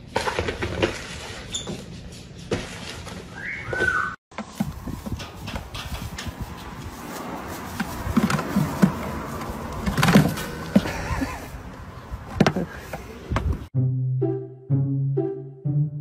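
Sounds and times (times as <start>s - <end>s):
hooves knocking on plastic bucket: 4.3s - 6.4s, 7.6s - 11.0s.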